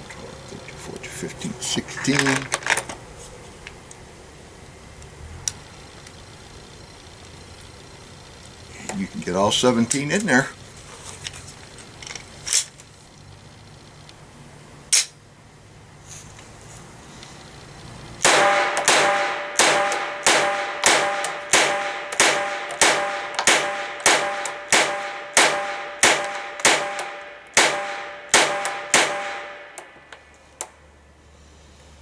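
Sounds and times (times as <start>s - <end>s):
sharp click: 14.9s - 15.2s
pistol shots: 18.2s - 29.9s
steel target clanging: 18.2s - 29.9s.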